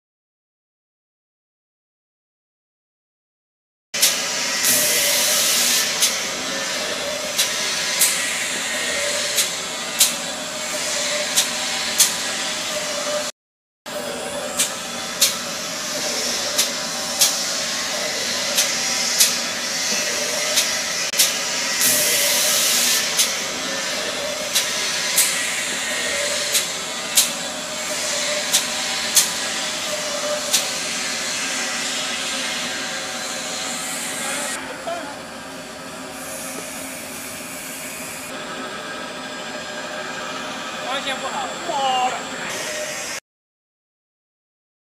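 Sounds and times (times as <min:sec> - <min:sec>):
paper cutting machine whirring: 0:04.0 - 0:13.3, 0:13.9 - 0:43.2
sharp machine click: 0:20.5 - 0:23.4, 0:26.4 - 0:27.4.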